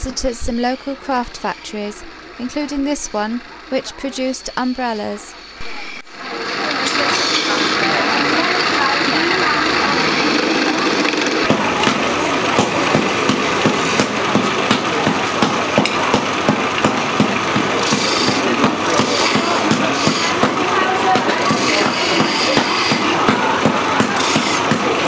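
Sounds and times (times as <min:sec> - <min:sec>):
wood lathe running: 0:05.5 - 0:25.0.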